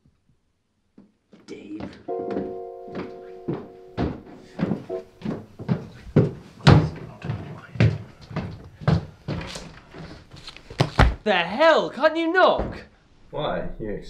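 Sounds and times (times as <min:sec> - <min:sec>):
footsteps in a hallway: 0:00.9 - 0:11.2.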